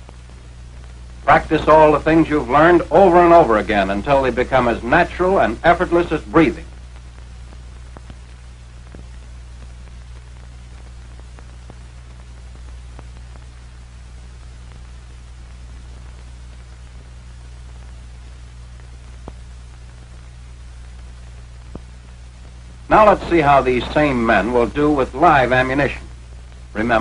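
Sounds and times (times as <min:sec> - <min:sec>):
film soundtrack hiss and hum: 0:00.0 - 0:27.0
faint clicks: 0:06.7 - 0:22.9.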